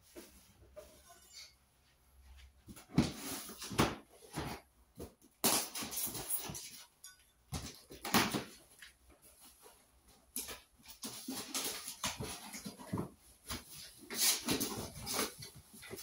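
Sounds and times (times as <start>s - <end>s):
cardboard scraping and rustling: 10.9s - 16.0s.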